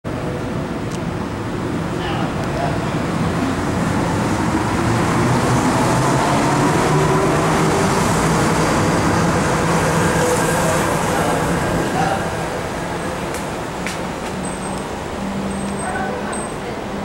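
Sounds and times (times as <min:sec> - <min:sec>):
monorail train humming past: 0:00.1 - 0:17.0.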